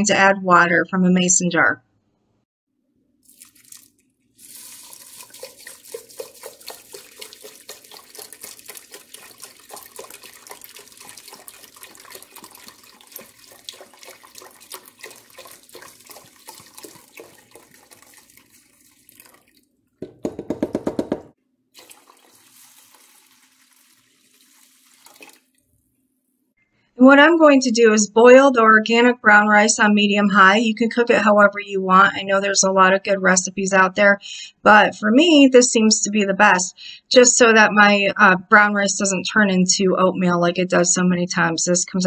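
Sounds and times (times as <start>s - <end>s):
broth pouring onto rice: 3.2s - 19.6s, 21.8s - 25.5s
liquid gurgling: 3.2s - 19.7s, 21.8s - 25.6s
water pouring from jar: 3.2s - 19.7s, 21.8s - 25.8s.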